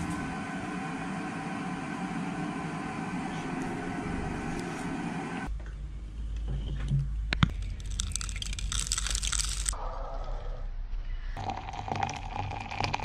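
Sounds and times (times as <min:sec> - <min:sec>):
steady machine hum: 0:00.0 - 0:07.1.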